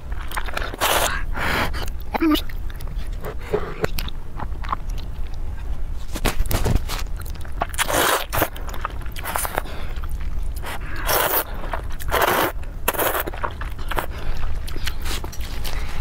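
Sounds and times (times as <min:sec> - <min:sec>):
wet chewing: 0:00.0 - 0:16.0
slurping noodles: 0:00.5 - 0:01.2, 0:07.8 - 0:08.5, 0:10.7 - 0:14.2.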